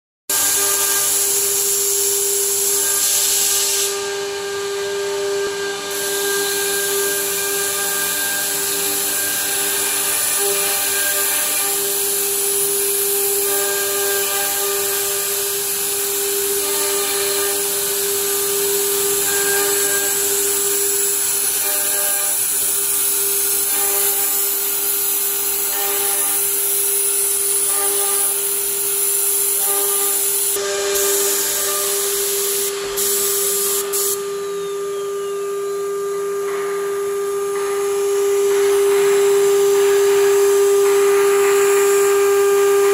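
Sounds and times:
hiss of cutting and extraction: 0.3 - 35.9
spindle whining: 34.3 - 35.9.

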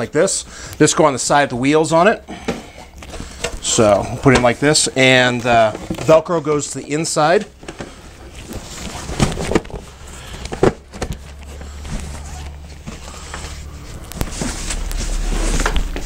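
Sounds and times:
fabric bag rustling and scraping: 7.8 - 16.0.

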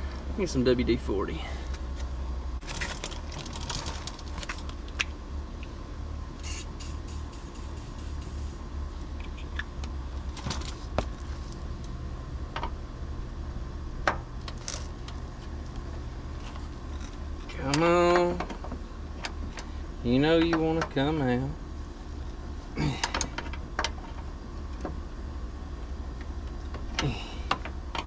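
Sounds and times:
low engine drone: 0.0 - 28.0
short hisses: 6.4 - 8.6.

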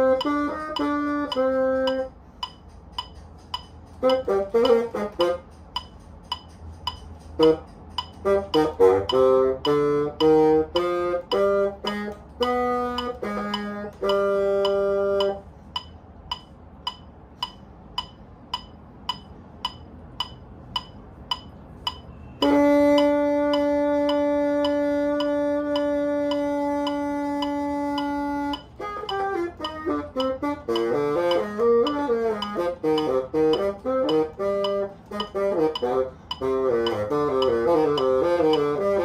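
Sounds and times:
bassoon playing: 0.0 - 2.3, 3.9 - 5.9, 7.4 - 15.6, 22.4 - 39.0
metronome ticking: 0.0 - 39.0.

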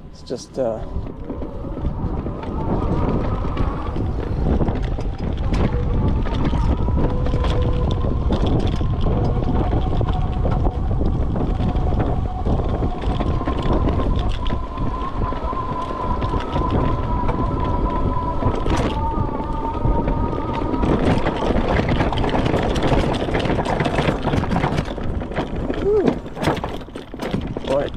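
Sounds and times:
wind on microphone: 0.0 - 27.9
bike clicks and rattles: 0.3 - 27.9
electric motor whine: 0.8 - 23.2.

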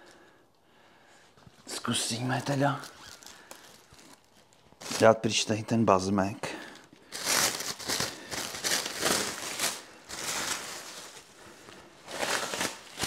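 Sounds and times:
plastic wrap crinkling and tearing: 1.7 - 5.5, 6.5 - 13.0.

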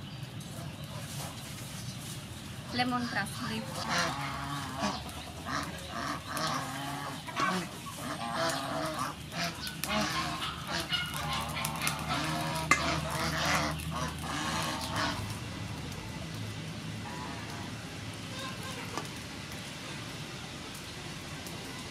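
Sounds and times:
geese honking: 2.6 - 19.2.

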